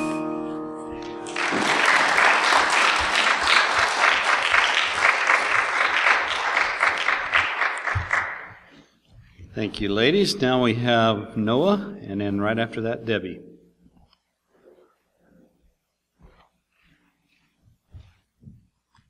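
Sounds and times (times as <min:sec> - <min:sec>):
congregation applauding: 0:01.0 - 0:08.7.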